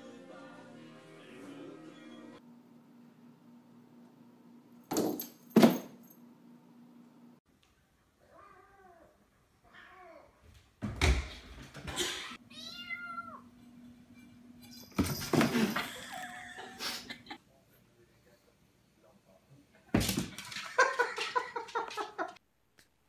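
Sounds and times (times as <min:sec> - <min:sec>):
cat meowing: 0:12.5 - 0:13.5.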